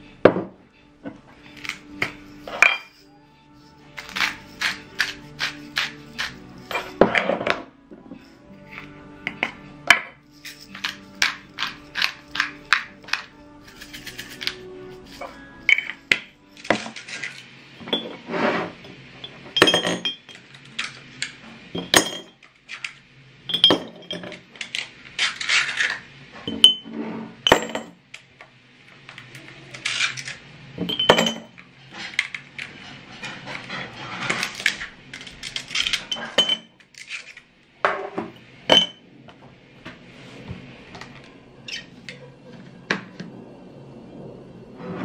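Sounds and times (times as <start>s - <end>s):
ice cubes clinking into glass jars: 1.5s - 7.6s, 9.3s - 18.2s, 19.2s - 20.9s, 21.8s - 22.9s, 23.5s - 26.8s, 29.8s - 32.4s, 34.4s - 37.4s, 38.7s - 39.0s.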